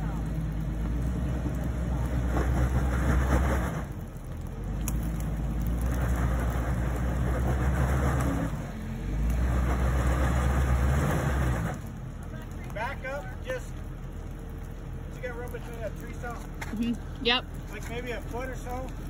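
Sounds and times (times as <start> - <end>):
engine revving under load: 0.0 - 19.0.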